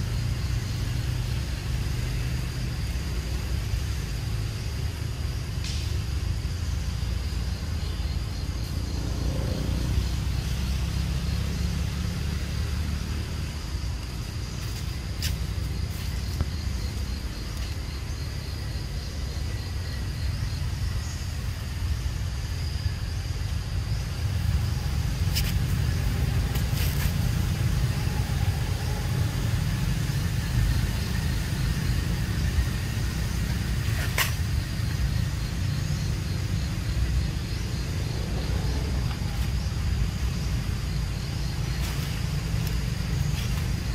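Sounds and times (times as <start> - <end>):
steady low rumble: 11.5 - 43.9.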